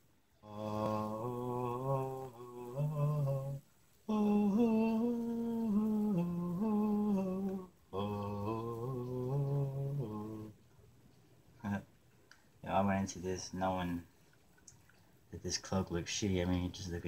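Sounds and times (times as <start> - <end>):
man humming a slow tune: 0.4 - 10.6.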